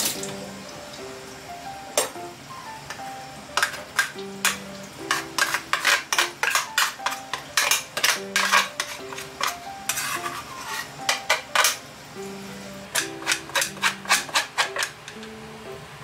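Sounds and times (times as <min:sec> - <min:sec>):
pestle scraping in mortar: 0:05.1 - 0:11.3, 0:13.0 - 0:14.9.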